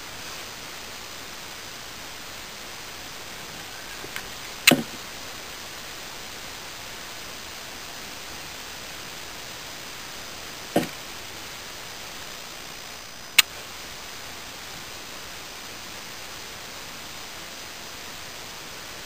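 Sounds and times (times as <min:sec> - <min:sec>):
microphone hiss: 0:00.0 - 0:19.0
sharp knock: 0:04.7 - 0:05.0.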